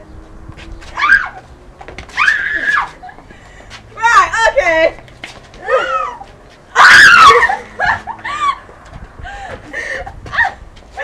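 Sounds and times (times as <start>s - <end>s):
girls screaming and squealing: 0.9s - 1.5s, 2.1s - 3.3s, 5.6s - 8.7s, 9.3s - 11.0s.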